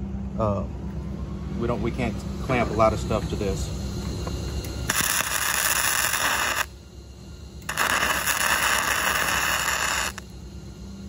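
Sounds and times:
welding arc crackling: 0:04.9 - 0:06.7, 0:07.6 - 0:10.3.

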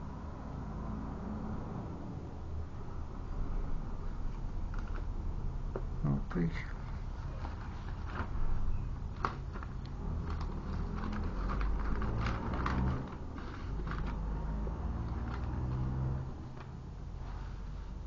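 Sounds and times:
paper rustling and crinkling: 0:07.0 - 0:18.0
small sharp paper crackles: 0:07.2 - 0:16.7.

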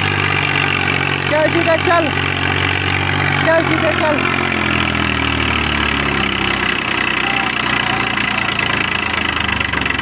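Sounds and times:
tractor diesel engine running: 0:00.0 - 0:10.0.

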